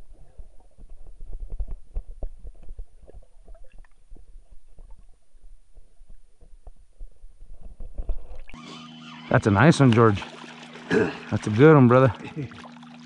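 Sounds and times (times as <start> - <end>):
underwater rumble of moving water: 0.0 - 8.6.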